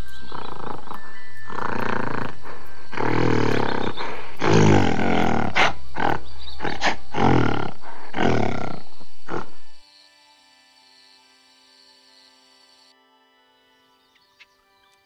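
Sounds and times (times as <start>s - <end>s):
gorilla deep calls: 0.0s - 9.7s.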